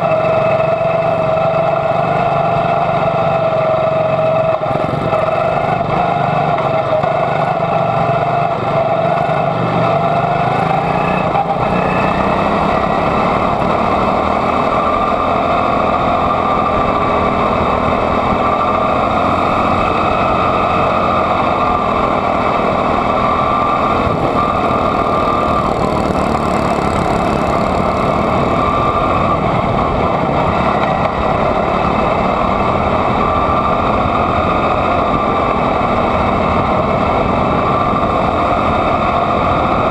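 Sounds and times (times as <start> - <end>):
small racing engine running: 0.0 - 39.9.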